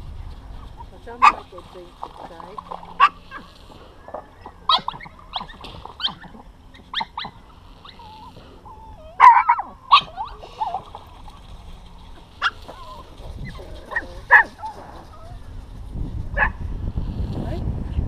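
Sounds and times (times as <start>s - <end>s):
small dogs yapping: 0.6s - 15.6s
dogs whining: 2.6s - 15.6s.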